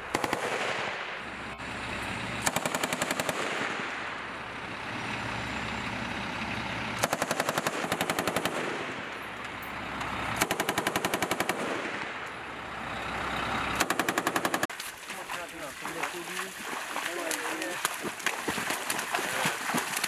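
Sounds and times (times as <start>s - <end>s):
heavy machine gun bursts: 2.4s - 3.9s, 7.0s - 9.1s, 10.4s - 12.2s, 13.8s - 14.7s.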